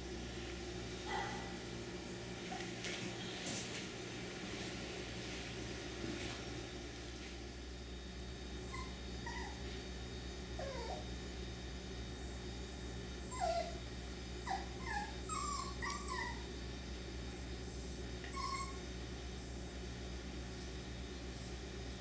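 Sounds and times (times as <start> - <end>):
puppies whimpering and yipping: 8.6 - 9.7, 10.6 - 11.0, 12.1 - 13.8, 14.4 - 16.5, 17.3 - 19.8.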